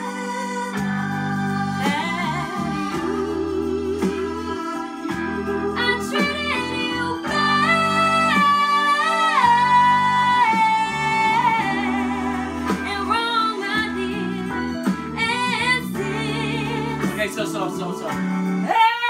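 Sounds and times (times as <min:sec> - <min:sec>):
girl singing: 0:00.0 - 0:05.0, 0:05.6 - 0:14.5, 0:15.2 - 0:17.2
sustained backing chords: 0:00.8 - 0:18.7.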